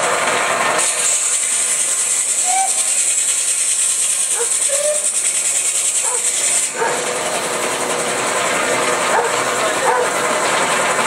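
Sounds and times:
circular saw cutting log: 0.0s - 11.0s
saw running free: 0.0s - 11.0s.

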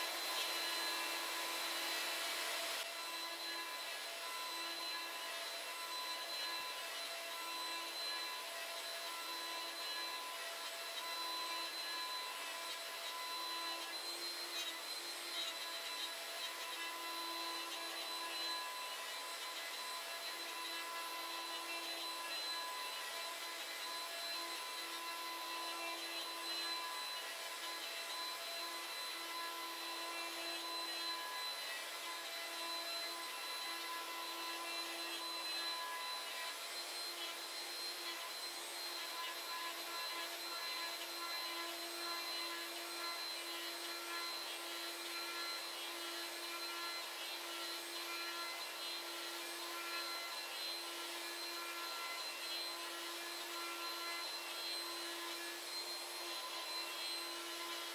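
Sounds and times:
router spindle whining: 0.0s - 57.9s.

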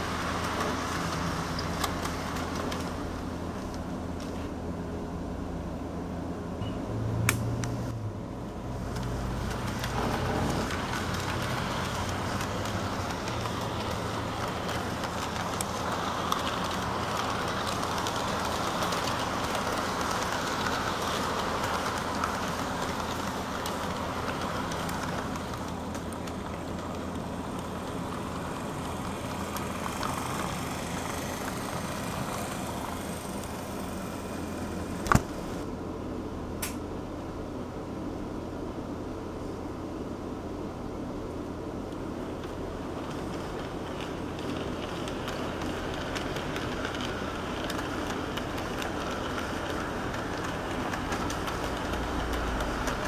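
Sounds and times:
model train wheels rumbling on rails: 0.0s - 4.4s, 8.6s - 35.7s, 42.2s - 53.0s
sharp click: 36.6s - 36.8s.

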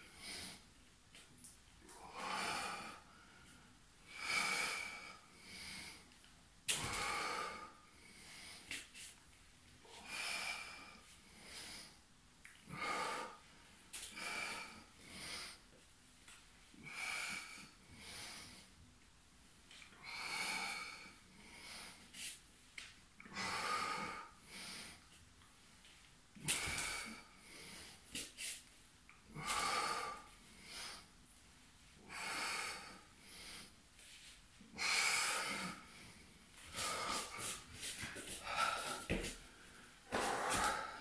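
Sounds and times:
man breathing hard: 1.9s - 6.1s, 6.7s - 8.8s, 26.4s - 28.6s, 29.3s - 31.1s, 32.0s - 33.8s, 34.7s - 41.0s.

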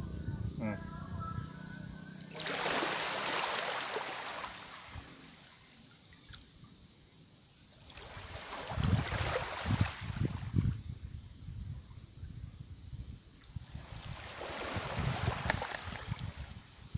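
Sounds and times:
seawater washing over rocks: 2.3s - 5.4s, 14.0s - 16.5s.

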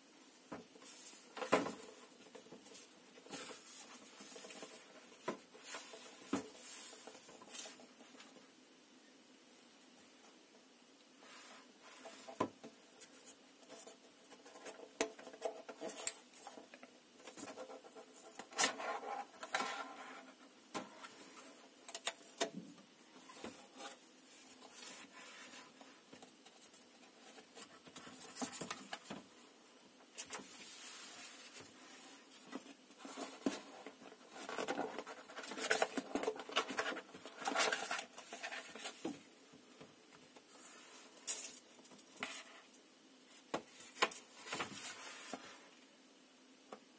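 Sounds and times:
handling cardboard and plastic packaging: 30.2s - 39.3s.

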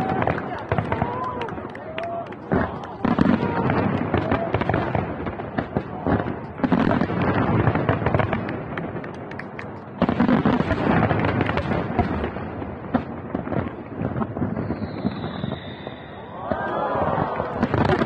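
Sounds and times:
firework crackling pops: 0.0s - 16.7s, 17.3s - 18.0s
firework bangs: 0.0s - 18.0s.

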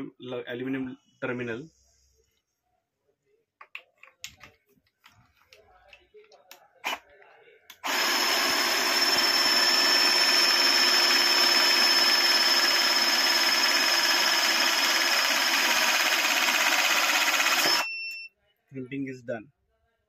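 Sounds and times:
hydraulic crimping tool whining: 7.7s - 17.9s
short beep: 17.8s - 18.4s.

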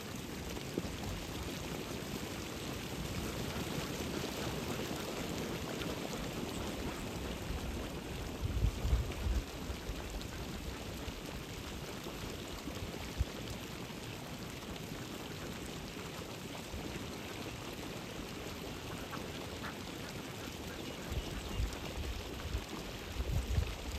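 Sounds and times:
steady open-air hiss: 0.0s - 23.9s
wind buffeting microphone: 6.9s - 10.8s, 21.0s - 23.9s.

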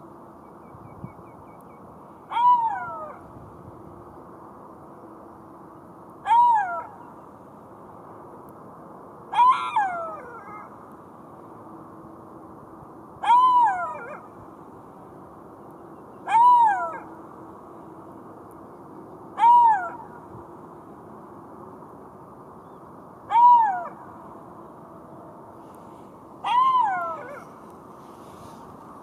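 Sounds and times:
steady low hiss: 0.0s - 29.0s
jackal calling: 26.4s - 27.6s.

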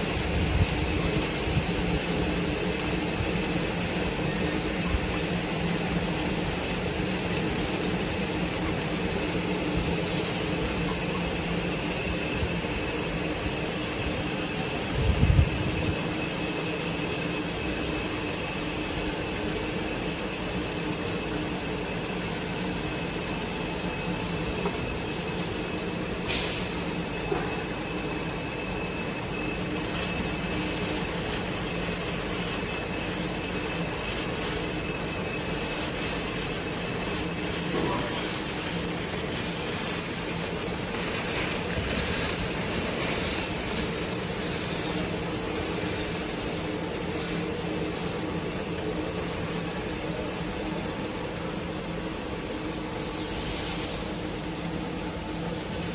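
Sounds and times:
conveyor machinery hum: 0.0s - 55.9s.

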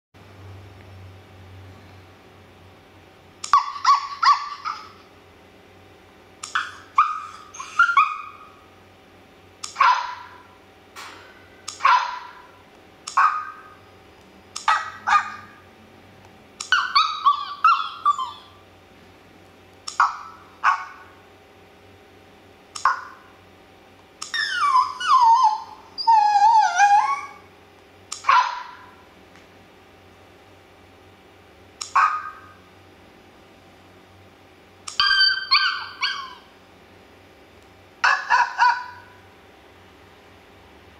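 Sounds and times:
recorded puppy yips and yelps: 3.4s - 5.0s, 6.5s - 8.6s, 9.7s - 10.4s, 11.7s - 12.5s, 13.1s - 13.8s, 14.6s - 15.6s, 16.6s - 18.6s, 19.9s - 21.1s, 22.8s - 23.2s, 24.2s - 27.5s, 28.2s - 29.0s, 31.8s - 32.6s, 34.9s - 36.5s, 38.0s - 39.2s
dog barking: 9.7s - 10.5s, 11.8s - 13.8s, 14.6s - 15.6s, 20.0s - 21.2s, 28.2s - 29.0s, 31.9s - 32.6s, 35.0s - 36.5s, 38.0s - 39.2s.

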